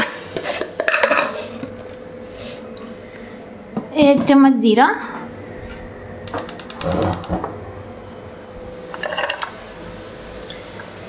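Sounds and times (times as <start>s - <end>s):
seeds crackling in hot oil: 6.3s - 7.4s.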